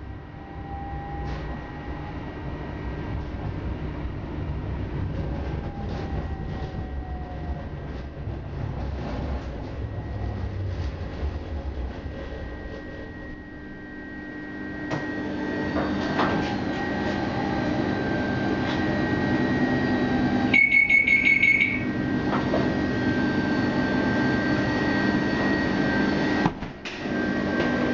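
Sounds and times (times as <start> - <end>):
tram equipment hum: 0.0 - 27.9
buzzing signal tone: 19.2 - 22.0.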